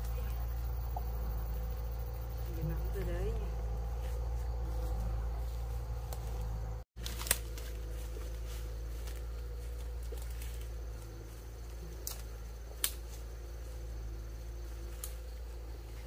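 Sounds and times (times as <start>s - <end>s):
low outdoor rumble: 0.0s - 16.0s.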